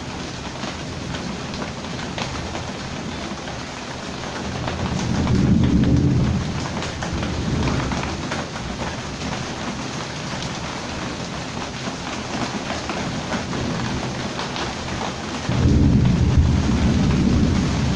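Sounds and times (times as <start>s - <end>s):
heavy rain falling: 0.0s - 17.9s
deep roll of thunder: 4.4s - 8.8s, 15.5s - 17.9s.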